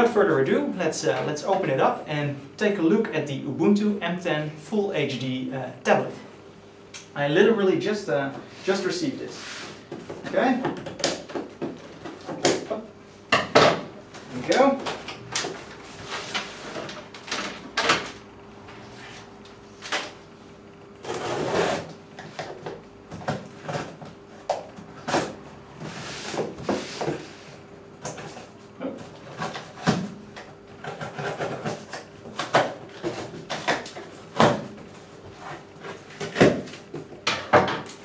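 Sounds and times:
scissors cutting cardboard and tape: 21.0s - 22.5s, 29.2s - 34.6s.

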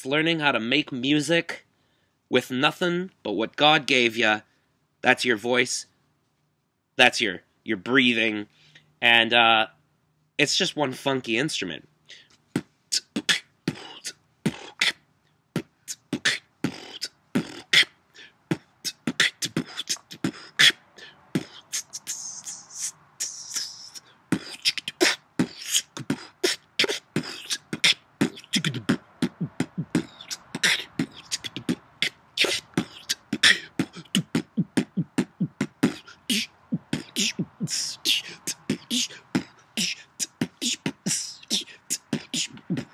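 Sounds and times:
person beatboxing: 12.6s - 15.0s, 15.6s - 42.9s.

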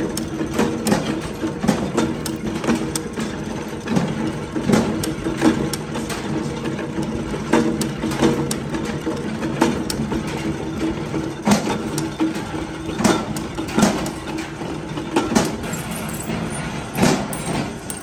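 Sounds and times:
punch press humming: 9.6s - 18.0s.

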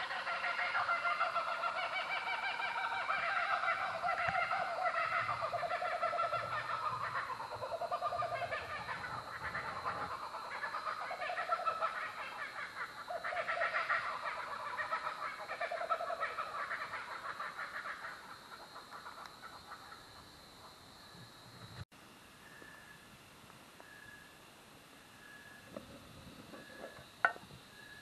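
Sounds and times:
birds calling: 0.0s - 20.8s.

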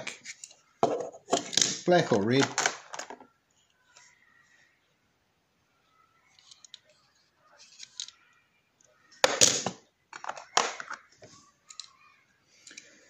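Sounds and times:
toy cars rustling and clicking: 0.1s - 4.2s, 6.2s - 13.0s
toy cars clattering: 0.2s - 3.3s, 6.3s - 13.0s.

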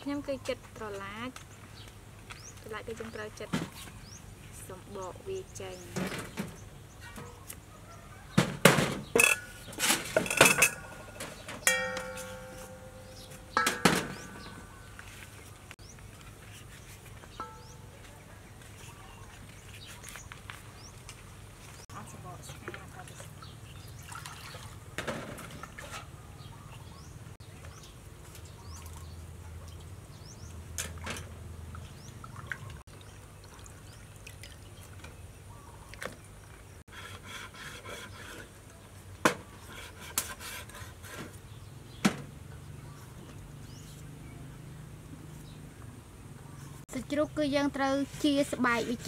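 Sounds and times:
water sloshing in metal bowl: 22.5s - 26.2s, 30.7s - 35.3s.

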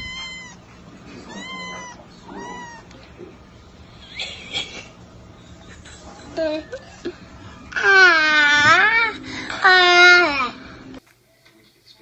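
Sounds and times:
kitten mewing: 0.0s - 0.6s, 1.2s - 3.0s
kitten squealing: 0.0s - 3.0s.

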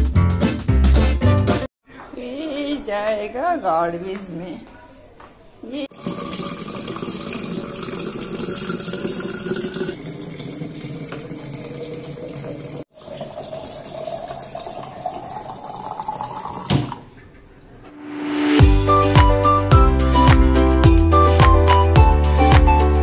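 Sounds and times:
tap water pouring into bottles: 5.9s - 17.4s.

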